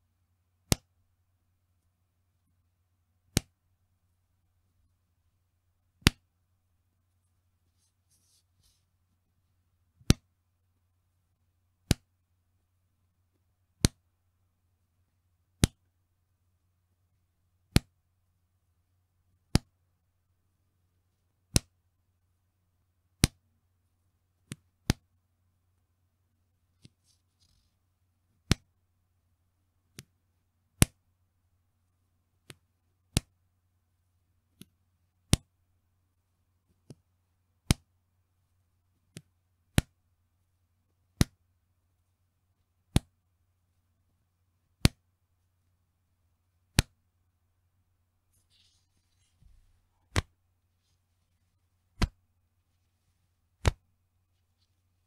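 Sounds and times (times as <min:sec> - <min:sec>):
elastic band snapping: 0:44.8 - 0:45.0, 0:50.1 - 0:50.3, 0:52.0 - 0:52.2, 0:53.6 - 0:53.8.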